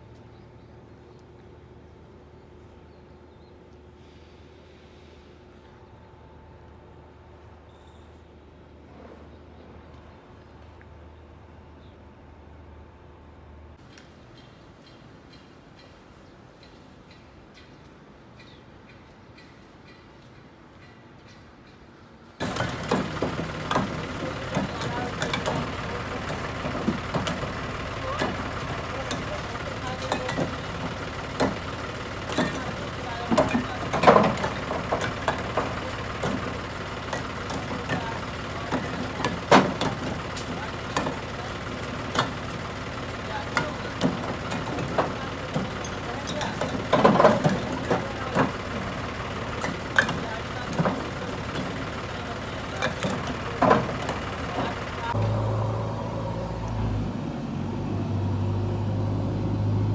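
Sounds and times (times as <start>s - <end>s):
voices: 22.4s - 57.4s
diesel tractor engine idling: 22.4s - 59.9s.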